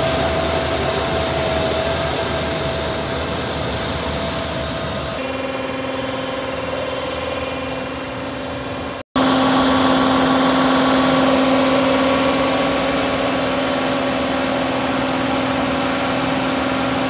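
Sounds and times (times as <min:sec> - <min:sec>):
diesel engine running: 0:00.0 - 0:17.0
steady pitched hum: 0:00.0 - 0:17.0.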